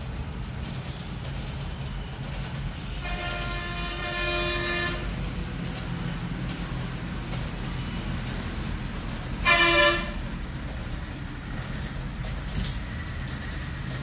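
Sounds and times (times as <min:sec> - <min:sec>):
traffic rumble: 0:00.0 - 0:14.0
vehicle horn honk: 0:03.0 - 0:05.1, 0:09.4 - 0:10.2.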